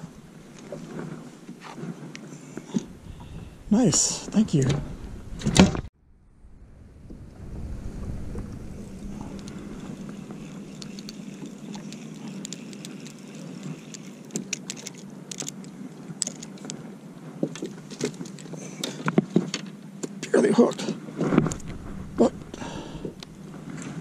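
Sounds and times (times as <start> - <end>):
steady low hum: 6.0 - 17.3, 21.3 - 24.0.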